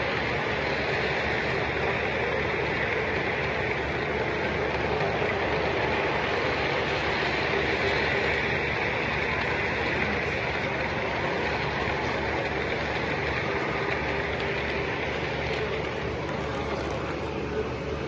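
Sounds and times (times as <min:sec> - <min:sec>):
model train wheels clattering: 0:00.0 - 0:18.0.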